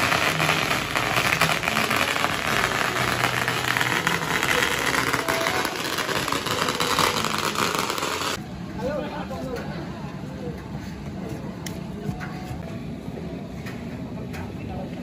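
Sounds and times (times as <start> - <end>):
firecrackers crackling: 0.0 - 8.4.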